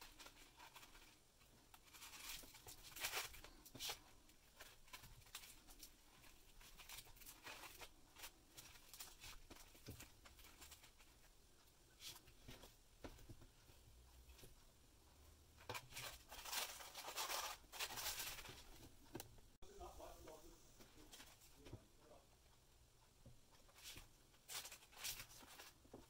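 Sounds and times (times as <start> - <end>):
ribbon rustling and tapping: 0.0 - 14.8
crinkly rustling of fabric bag: 15.8 - 18.8.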